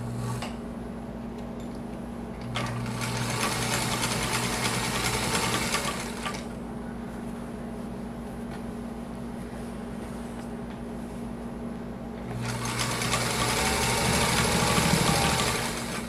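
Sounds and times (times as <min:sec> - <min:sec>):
sewing machine stitching: 0:02.5 - 0:06.4, 0:12.3 - 0:16.0.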